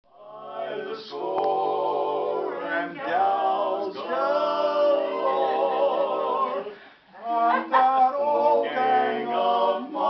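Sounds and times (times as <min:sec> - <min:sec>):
group singing in harmony: 0:00.1 - 0:10.0.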